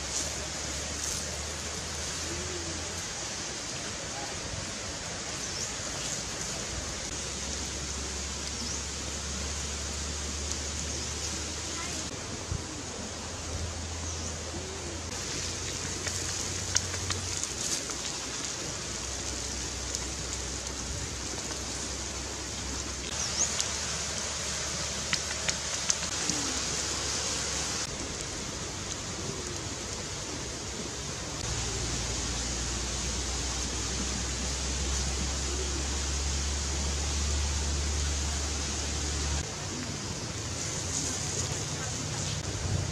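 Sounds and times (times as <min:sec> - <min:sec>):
shrimp sizzling in oil: 0:15.1 - 0:29.5.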